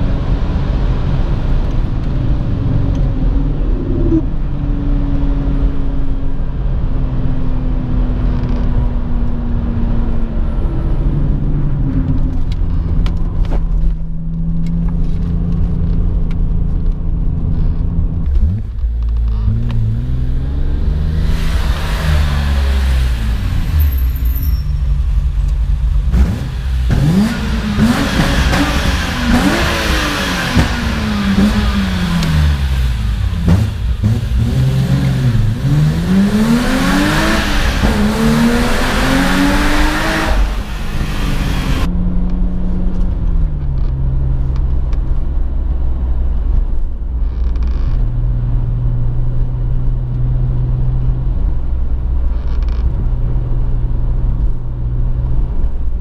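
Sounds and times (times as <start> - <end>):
engine and exhaust echoing in tunnel: 0.0 - 56.0
car engine revving: 16.7 - 42.1.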